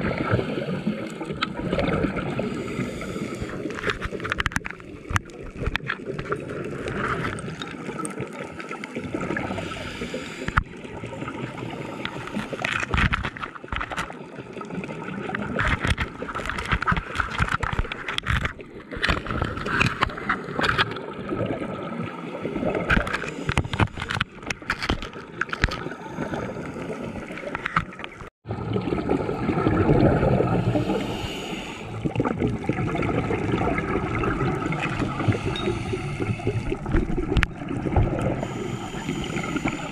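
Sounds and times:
underwater scuba bubbles gurgling: 0.0s - 39.9s
crackle of small clicks: 1.0s - 1.9s, 3.2s - 9.0s, 10.4s - 10.8s, 12.0s - 21.1s, 22.8s - 26.0s, 26.6s - 28.3s, 36.6s - 39.9s.

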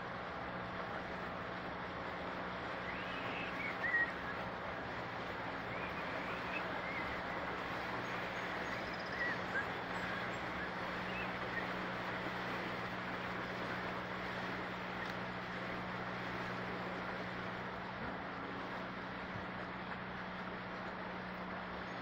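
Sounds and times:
boat engine humming: 0.0s - 22.0s
water rushing: 0.0s - 22.0s
bird chirping: 8.6s - 10.4s.

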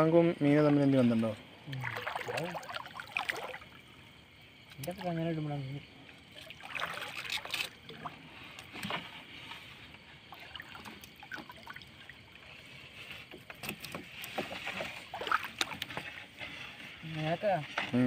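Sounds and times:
water splashing and dripping: 1.6s - 3.9s, 4.7s - 5.2s, 6.0s - 9.0s, 10.2s - 12.6s, 13.4s - 16.2s
wet fishing net hauled by hand: 1.7s - 3.8s, 6.2s - 18.0s
small knocks and patters: 8.4s - 18.0s.

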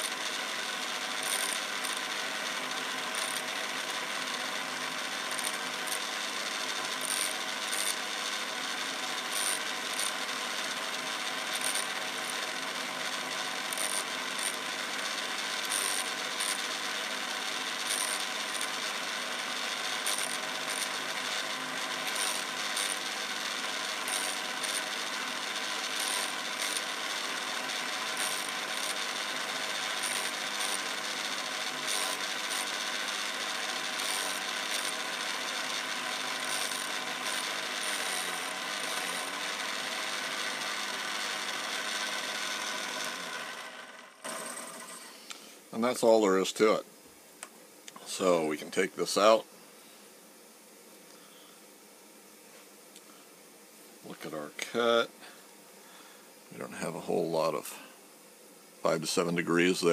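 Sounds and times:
tool grinder motor hum: 0.0s - 45.9s
grinding wheel hiss: 0.0s - 46.8s.

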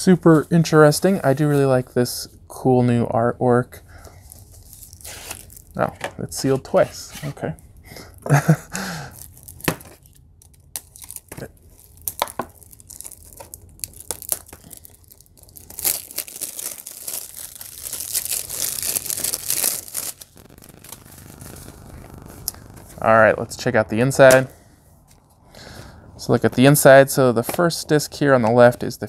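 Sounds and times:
plastic wrap crinkling tear: 4.2s - 5.9s, 8.3s - 23.2s
thumbnail scratching plastic wrap: 10.8s - 22.8s.

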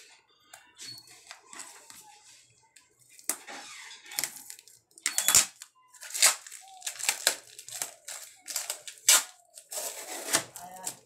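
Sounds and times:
wrapping crinkling and tearing: 3.0s - 11.0s.

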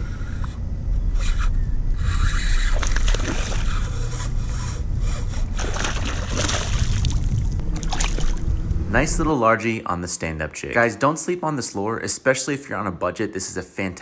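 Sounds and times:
low rumble: 0.0s - 10.6s
fish splashing at surface: 5.6s - 8.4s.

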